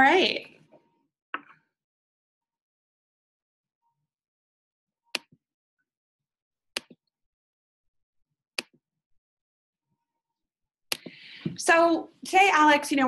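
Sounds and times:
computer mouse clicks: 6.8s - 7.0s.

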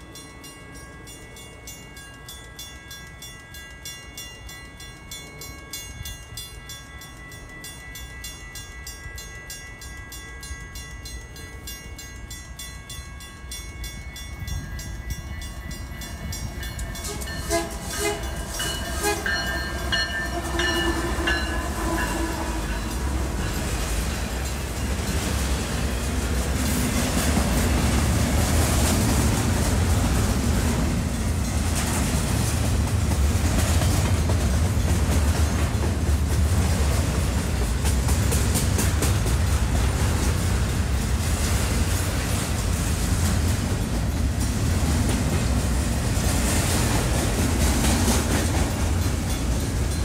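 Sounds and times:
freight train rumble passing: 0.0s - 50.0s
train horn blasts: 17.0s - 23.5s.

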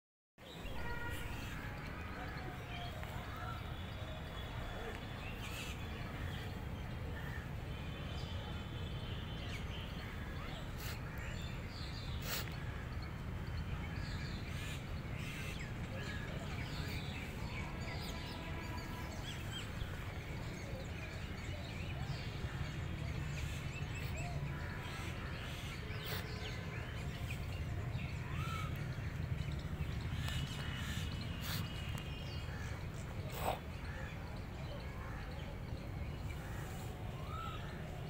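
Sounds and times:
birds calling: 13.9s - 38.0s.

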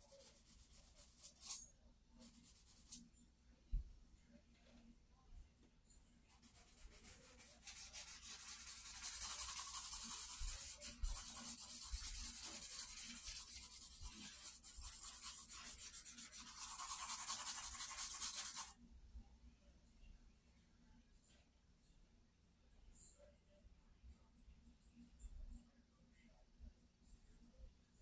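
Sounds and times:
charcoal scratching on paper: 0.0s - 1.6s, 6.3s - 18.8s.

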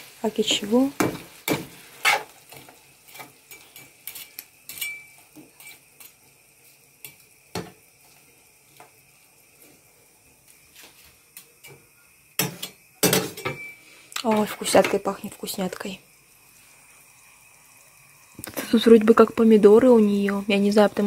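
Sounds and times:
faint frying sizzle: 0.0s - 21.0s
spatula scraping a frying pan: 1.0s - 6.2s.

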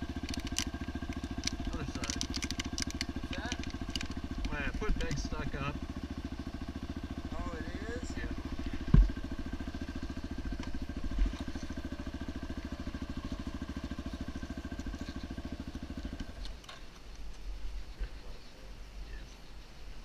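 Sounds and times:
motorcycle engine idling: 0.0s - 18.5s
thump: 8.9s - 9.2s.

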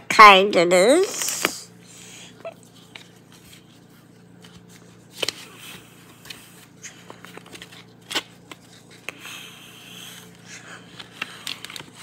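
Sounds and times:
paper leaflet crinkling: 10.9s - 12.0s.

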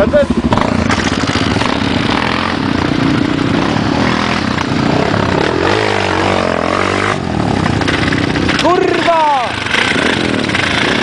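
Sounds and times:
off-road engine running: 0.0s - 11.0s.

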